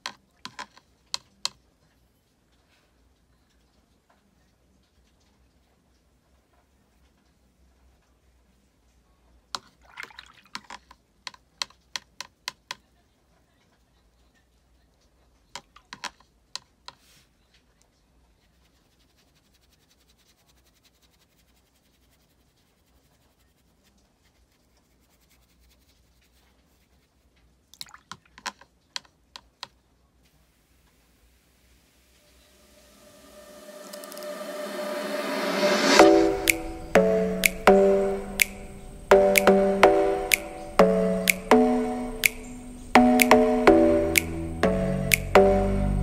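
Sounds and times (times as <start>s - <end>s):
faint steady hiss: 10.9s - 46.0s.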